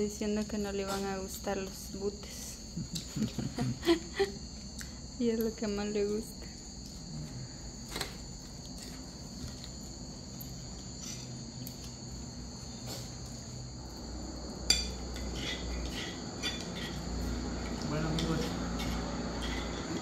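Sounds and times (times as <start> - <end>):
insects chirping: 0.0 - 20.0
tableware clink: 14.6 - 17.0.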